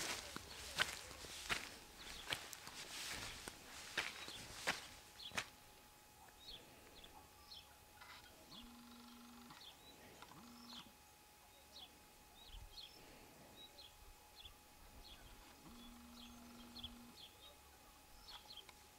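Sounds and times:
footsteps on dry soil: 0.0s - 5.6s
small birds chirping: 0.0s - 5.6s, 6.2s - 18.9s.

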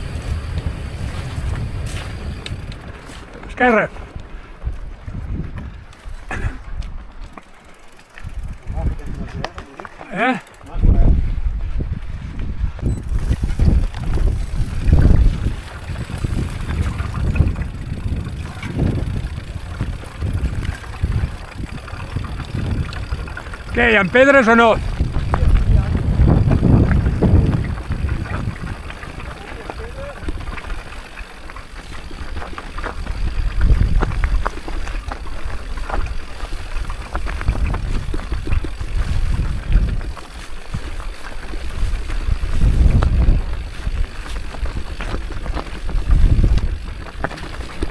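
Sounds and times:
wind buffeting microphone: 0.0s - 7.3s, 8.1s - 9.8s, 10.5s - 47.9s
mountain bike rumbling and rattling: 0.0s - 47.9s
bike jolting over rocks: 12.8s - 47.9s.

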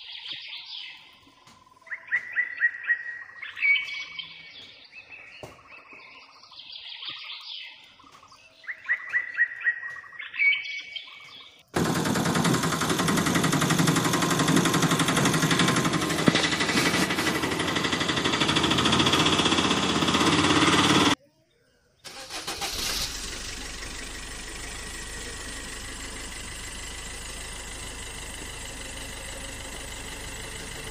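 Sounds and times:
birds chirping: 0.0s - 11.7s
fast-pulsing engine sound effect: 11.8s - 21.2s.

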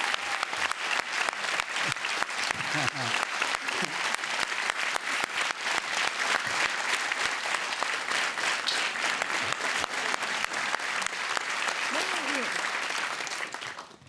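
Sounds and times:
audience applauding: 0.0s - 14.0s.

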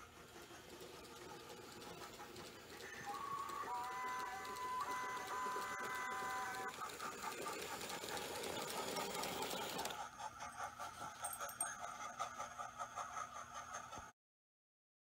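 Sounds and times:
small electric motor whirring: 0.0s - 11.8s
toy train rhythmic beat: 0.0s - 14.1s.

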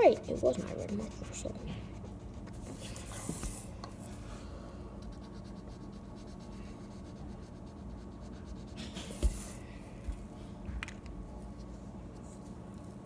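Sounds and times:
marker scratching on paper: 0.0s - 3.8s, 5.0s - 9.6s.

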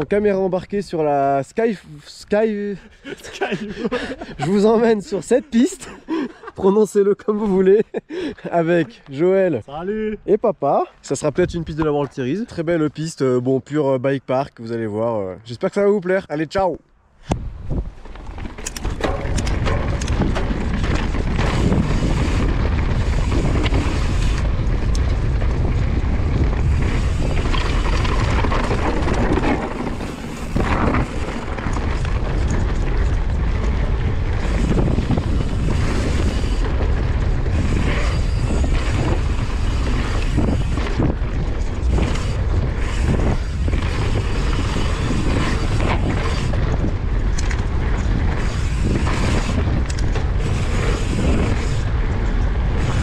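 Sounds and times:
wind noise on microphone: 11.2s - 12.8s, 17.2s - 53.0s
bike tyre rumble: 17.2s - 53.0s
bike chain and frame rattling: 17.9s - 53.0s.

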